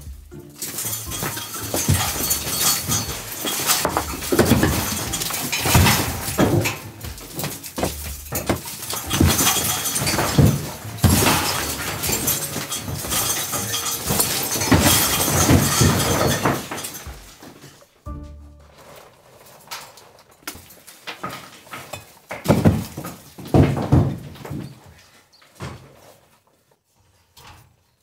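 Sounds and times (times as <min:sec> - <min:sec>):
bricks crashing down: 0:00.6 - 0:17.8, 0:20.5 - 0:24.8.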